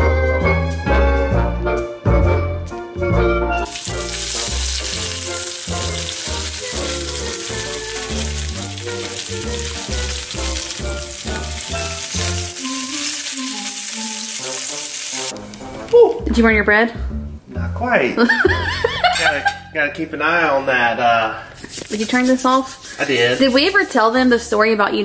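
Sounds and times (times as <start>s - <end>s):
music with rhythmic bass line: 0.0s - 12.6s, 16.2s - 19.6s
bacon sizzling in a skillet: 3.6s - 15.9s, 21.6s - 24.6s.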